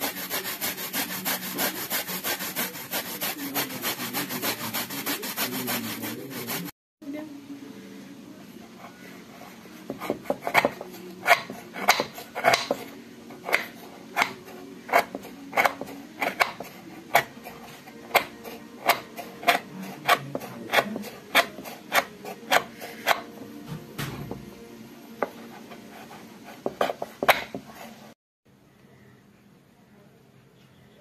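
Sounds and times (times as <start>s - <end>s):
knife scraping sugar block: 0.0s - 6.7s, 8.8s - 23.5s, 25.2s - 28.2s.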